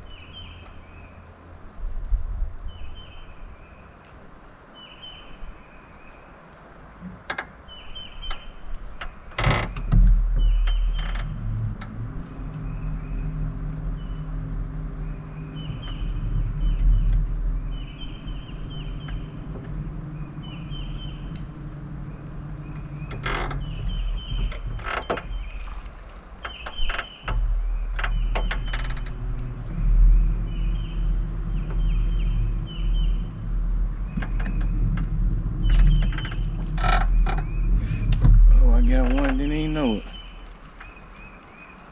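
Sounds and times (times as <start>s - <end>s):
low motor hum: 6.8s - 41.9s
sharp clicks and knocks: 8.2s - 12.7s, 22.7s - 25.4s, 26.4s - 30.0s, 34.0s - 40.9s
high bird chirps: 20.1s - 34.8s.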